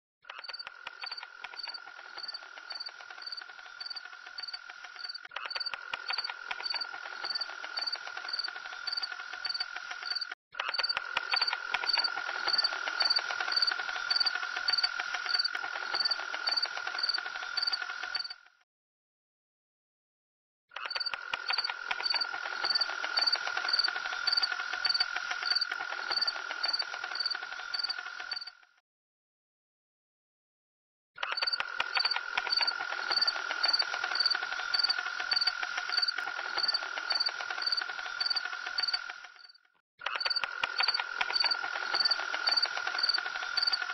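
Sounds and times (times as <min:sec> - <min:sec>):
insect drone: 0:00.3 - 0:18.5, 0:20.8 - 0:28.6, 0:31.3 - 0:43.9
crickets chirping: 0:00.5 - 0:10.3, 0:11.3 - 0:18.3, 0:21.0 - 0:28.5, 0:31.5 - 0:39.5, 0:40.2 - 0:43.9.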